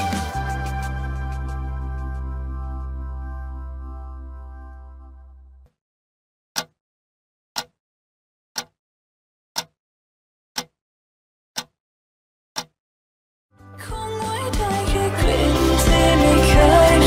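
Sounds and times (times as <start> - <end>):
clock ticking: 6.6 - 6.8, 7.6 - 7.8, 8.6 - 8.8, 9.6 - 9.8, 10.6 - 10.8, 11.6 - 11.8, 12.6 - 12.8.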